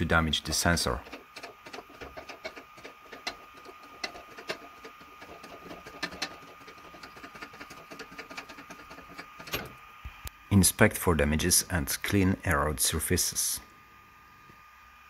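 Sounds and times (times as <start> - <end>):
faint steady whine: 0.0 - 15.0.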